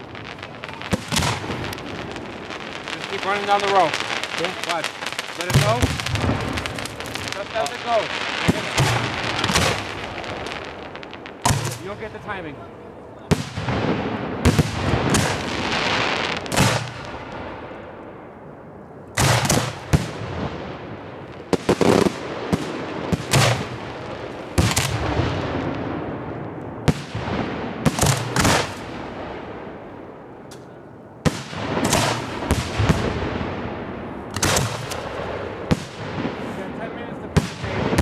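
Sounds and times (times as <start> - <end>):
firework shells banging: 0.0 - 12.3
firework hiss: 0.0 - 12.4.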